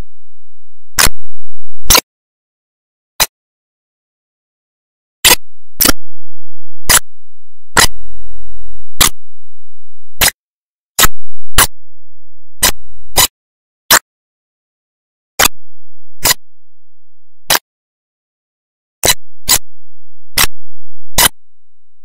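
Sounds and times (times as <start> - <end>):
sharp clicks: 1.0 - 1.3, 9.0 - 9.2, 11.0 - 11.8, 12.6 - 13.3.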